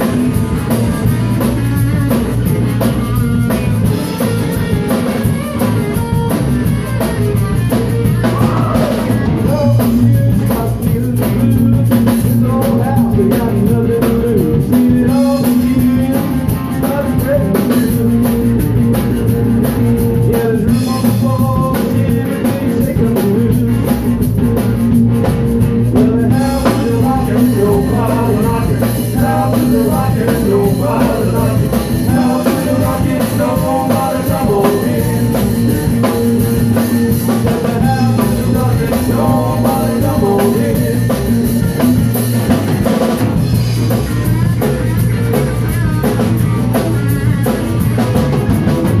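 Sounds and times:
live rock band playing: 0:00.0 - 0:49.0
man singing into a microphone: 0:08.3 - 0:18.6, 0:20.2 - 0:24.2, 0:25.9 - 0:36.2, 0:37.4 - 0:41.5.

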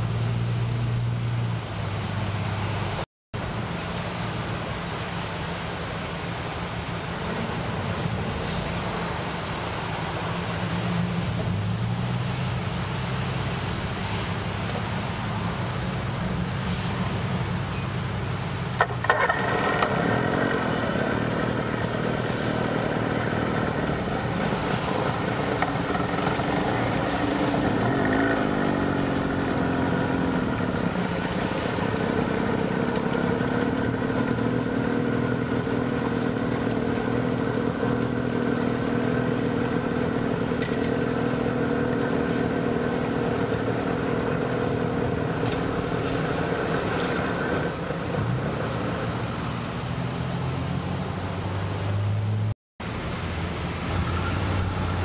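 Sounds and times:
low engine hum: 0:00.0 - 0:55.0
outboard motor running: 0:13.2 - 0:49.6.

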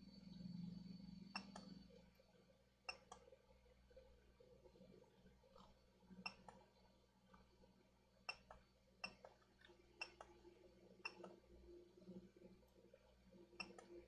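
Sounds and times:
faint sharp clicks: 0:01.4 - 0:01.8.

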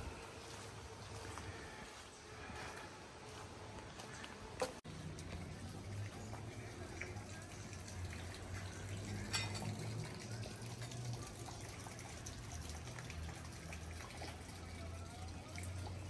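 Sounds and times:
running water: 0:04.9 - 0:16.0.

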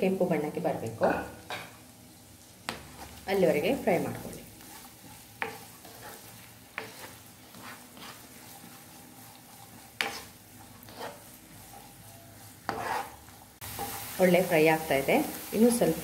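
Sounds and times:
onions sizzling in a frying pan: 0:00.0 - 0:16.0
spatula scraping a pan: 0:02.6 - 0:14.2.

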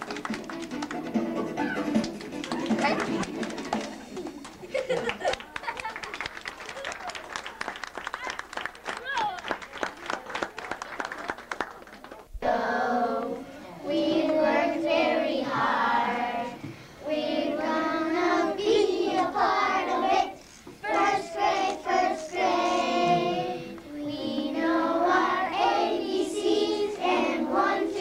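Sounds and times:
children singing together: 0:12.4 - 0:28.0.

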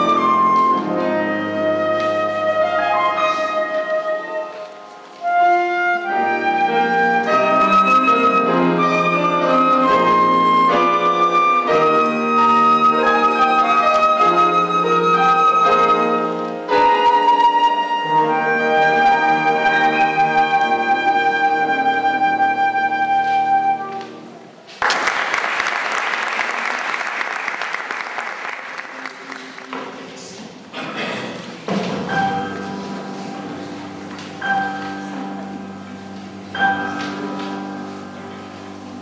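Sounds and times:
flute melody: 0:00.0 - 0:24.6, 0:32.1 - 0:39.0
piano accompaniment: 0:00.0 - 0:24.7, 0:31.5 - 0:39.0
audience applause: 0:24.7 - 0:30.1.

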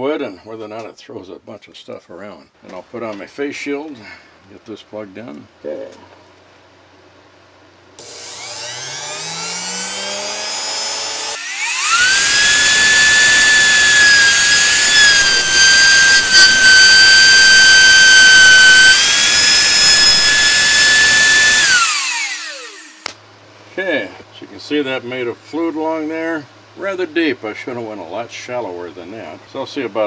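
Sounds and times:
router high whine: 0:08.0 - 0:23.2
wood cutting rush: 0:08.0 - 0:23.2.

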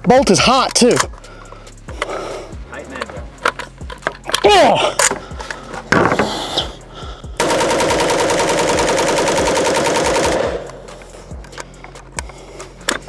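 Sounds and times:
automatic rifle burst: 0:07.4 - 0:10.8.

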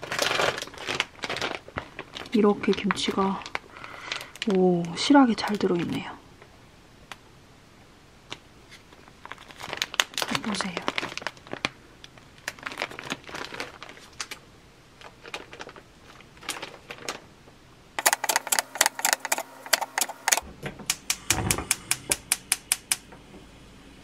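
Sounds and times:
plastic packets crinkling: 0:00.0 - 0:06.0, 0:08.9 - 0:17.4, 0:18.0 - 0:20.4
gas stove igniter ticking: 0:18.0 - 0:23.1.

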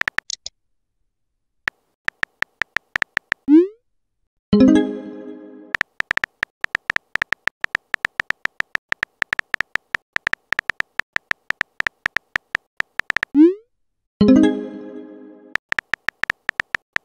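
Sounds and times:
keyboard key clicks: 0:00.0 - 0:00.5, 0:01.7 - 0:03.5, 0:05.8 - 0:13.4, 0:15.6 - 0:17.0.

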